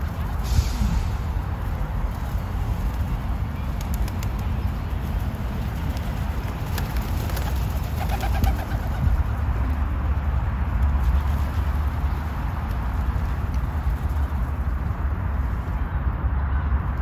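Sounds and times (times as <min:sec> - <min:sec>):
steady low rumble: 0:00.0 - 0:08.0.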